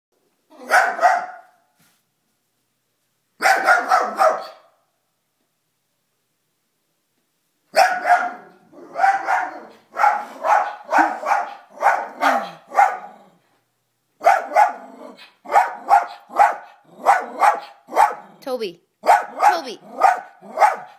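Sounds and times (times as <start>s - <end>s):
dog barking sharply: 0.6s - 1.6s, 3.4s - 4.8s, 7.7s - 13.0s, 14.2s - 18.2s, 19.0s - 20.9s.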